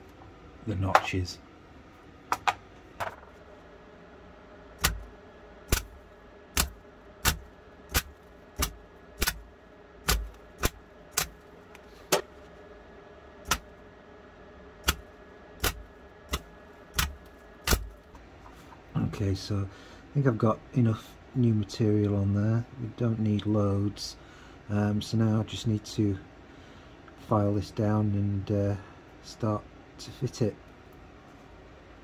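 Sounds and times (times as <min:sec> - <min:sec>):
welder crackling zaps: 0:04.8 - 0:05.1, 0:05.7 - 0:11.4, 0:15.6 - 0:18.0.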